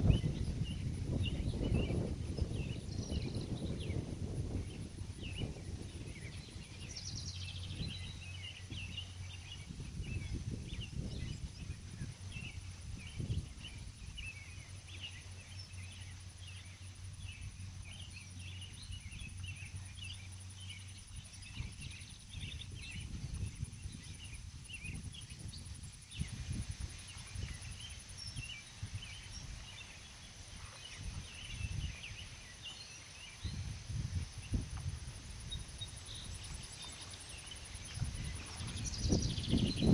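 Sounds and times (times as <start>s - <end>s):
small birds chirping: 0.0s - 39.9s
wind rumbling on microphone: 0.0s - 39.9s.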